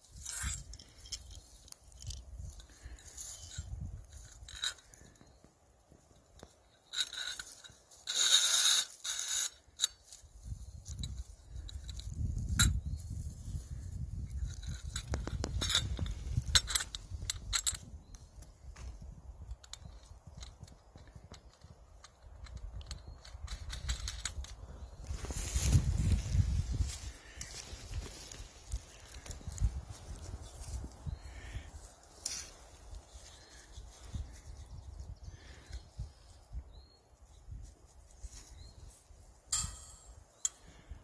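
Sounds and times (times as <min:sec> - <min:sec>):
metal frame tubes clicking: 0:00.0 - 0:05.3, 0:06.1 - 0:12.8, 0:14.3 - 0:18.5, 0:19.4 - 0:25.7, 0:39.5 - 0:41.0
wind rumbling on microphone: 0:00.0 - 0:05.3, 0:10.2 - 0:41.0
sharp metallic click: 0:39.5 - 0:40.7.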